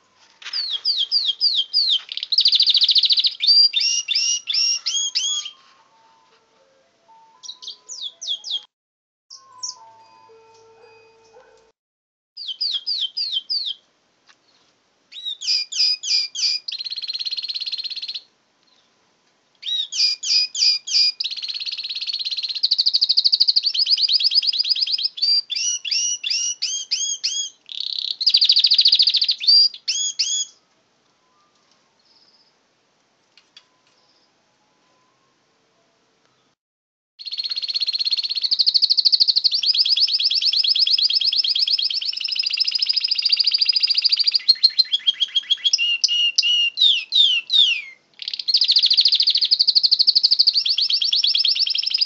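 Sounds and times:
canary singing trills: 0.5s - 6.3s, 7.3s - 8.7s, 9.3s - 11.6s, 12.4s - 13.8s, 15.1s - 18.9s, 19.6s - 30.6s, 37.2s - 52.0s.

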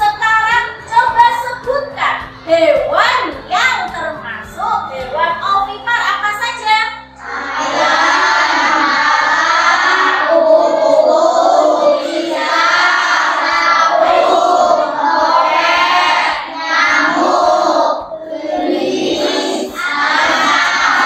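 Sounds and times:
children singing: 7.2s - 21.0s.

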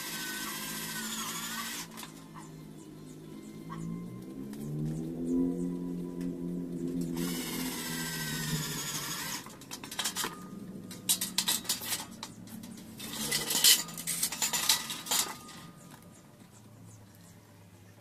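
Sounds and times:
metal profiles clinking: 6.1s - 16.6s.

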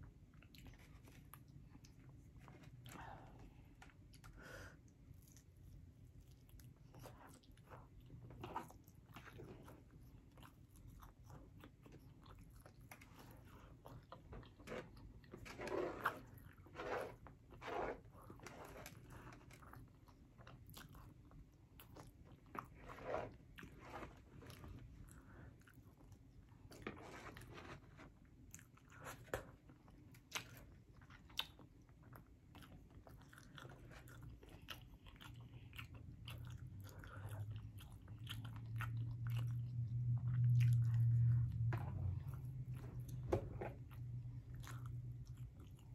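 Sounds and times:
chewing and biting food: 5.0s - 45.9s
low hum: 36.0s - 45.9s.

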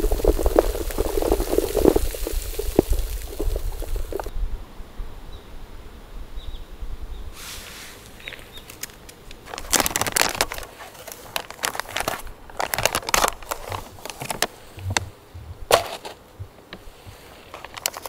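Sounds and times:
plastic and foil packaging crinkling: 8.2s - 14.6s, 17.5s - 18.0s.

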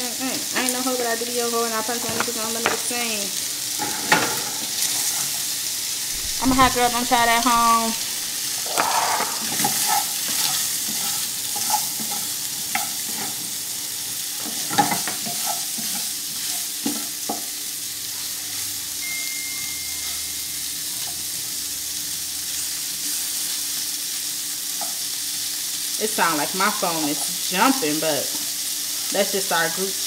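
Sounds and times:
sausage sizzling in a frying pan: 0.0s - 30.0s
spoon scraping and knocking pan: 6.2s - 13.4s, 14.4s - 17.5s.

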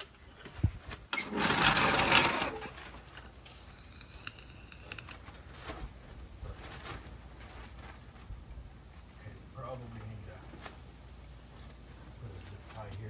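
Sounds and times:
power tool rattling: 1.1s - 5.2s.

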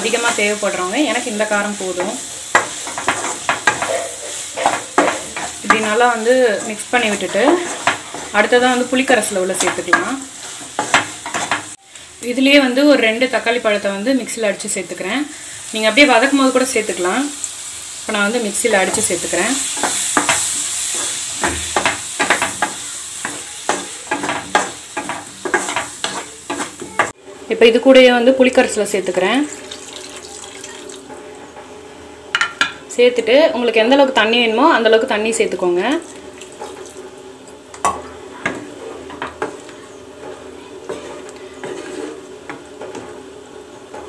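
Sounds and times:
food sizzling in a pan: 0.0s - 44.0s
spatula scraping a pan: 0.1s - 11.8s, 18.7s - 27.2s, 38.4s - 43.2s.

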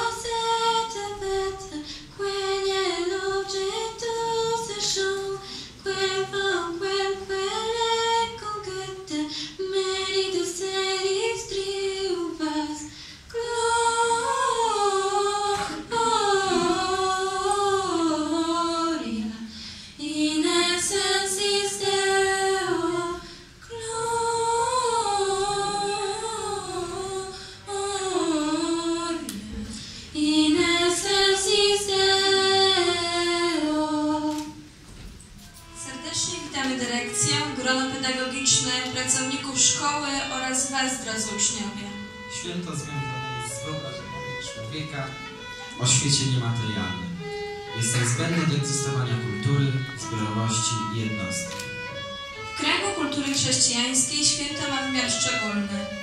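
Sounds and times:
young women singing carol: 0.0s - 34.8s, 35.8s - 42.2s.

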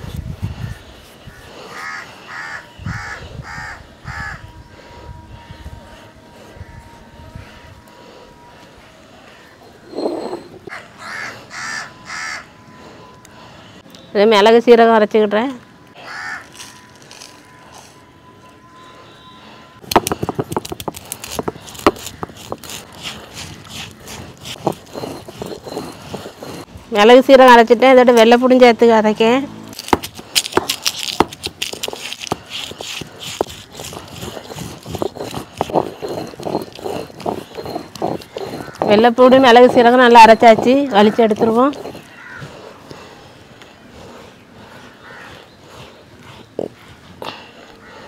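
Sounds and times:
crow cawing: 1.4s - 4.4s, 10.7s - 12.5s, 16.0s - 16.5s, 38.6s - 38.8s, 41.9s - 42.8s, 45.0s - 45.4s
stone grinding slab rubbing: 9.6s - 10.7s, 19.8s - 26.8s, 29.7s - 43.2s
paste scraped off stone by hand: 19.9s - 26.7s, 29.8s - 39.1s, 40.6s - 42.2s.

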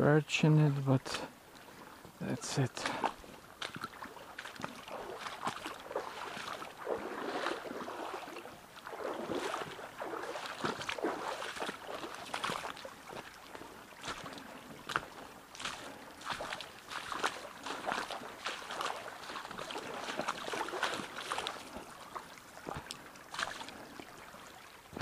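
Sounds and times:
person wading through water: 1.0s - 25.0s.

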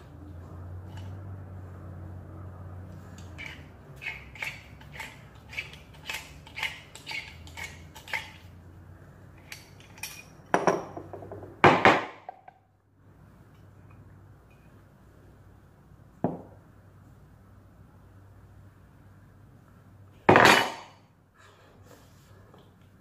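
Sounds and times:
metal parts clanking on table: 9.4s - 11.1s.

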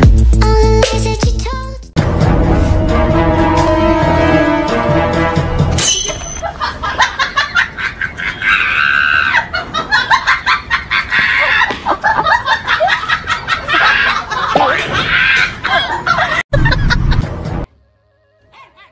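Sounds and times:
person laughing: 6.4s - 17.3s
shrill cries: 8.2s - 9.6s.

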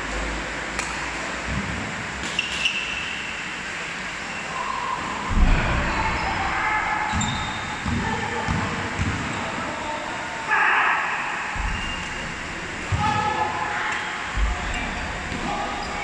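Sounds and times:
low thump: 5.3s - 8.1s, 11.6s - 13.2s, 14.3s - 15.9s
shoe squeaks on court floor: 7.1s - 8.0s.

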